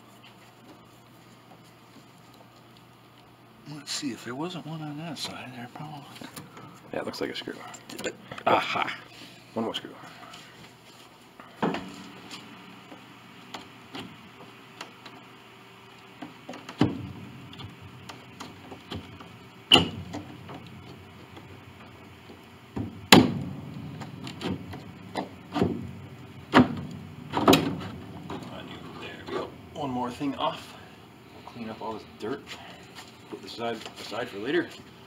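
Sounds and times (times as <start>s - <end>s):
wooden knocks and clunks: 22.7s - 28.5s.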